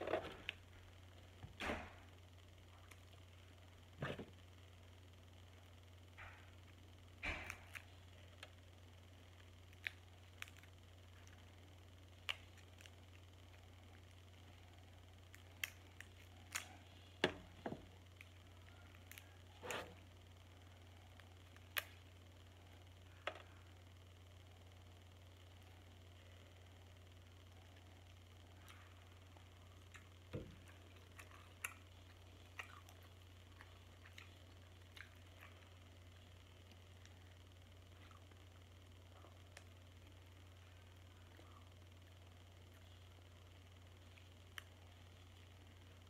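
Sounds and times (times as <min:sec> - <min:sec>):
low steady hum: 0:00.0 - 0:46.0
chewing: 0:29.8 - 0:35.8.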